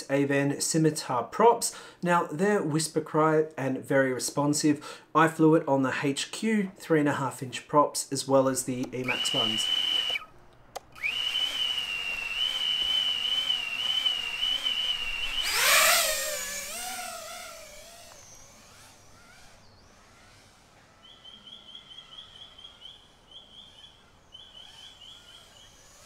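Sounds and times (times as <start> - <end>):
drone motors whining: 8.9 - 21.2, 24.4 - 26.0.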